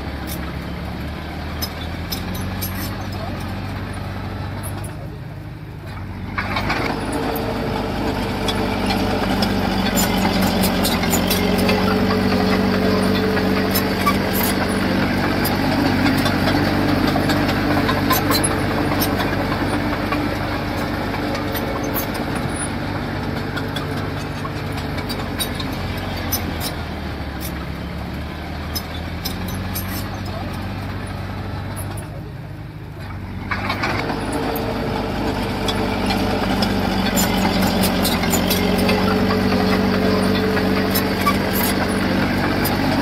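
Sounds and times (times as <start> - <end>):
diesel engine under load: 0.0 - 43.0
clicks and clanks: 5.8 - 27.9, 31.7 - 32.2, 33.0 - 43.0.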